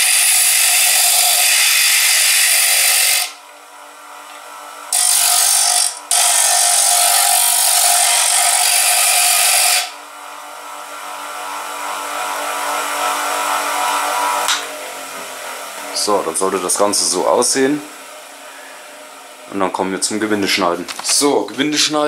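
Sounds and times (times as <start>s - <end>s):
bench grinder motor hum: 0.0s - 15.3s.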